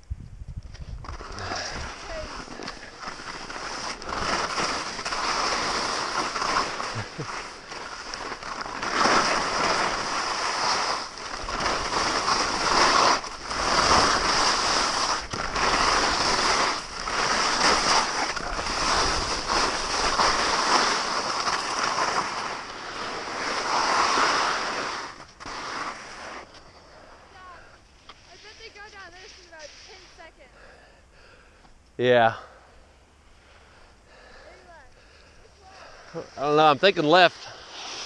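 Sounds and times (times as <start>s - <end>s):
wind on microphone: 0.0s - 2.6s
skis scraping over snow: 0.8s - 30.8s, 34.1s - 38.0s.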